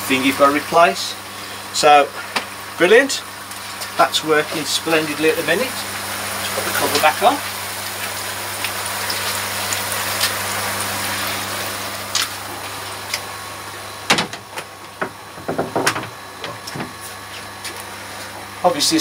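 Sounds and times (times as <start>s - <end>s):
low pump hum: 0.0s - 19.0s
water bubbling in filter: 5.4s - 13.2s
plastic lid knocks and clunks: 14.1s - 16.9s.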